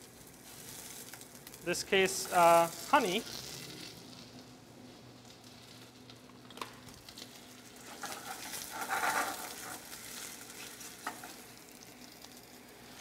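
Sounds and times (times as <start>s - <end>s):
onions sizzling in a pan: 0.0s - 6.2s, 6.8s - 13.0s
spatula scraping pan: 7.8s - 10.2s.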